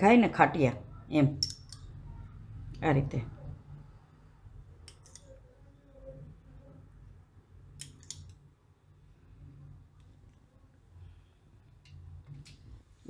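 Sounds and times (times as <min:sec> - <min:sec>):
faint low hum: 0:00.0 - 0:13.0
spoon clinking against glass: 0:01.4 - 0:01.9.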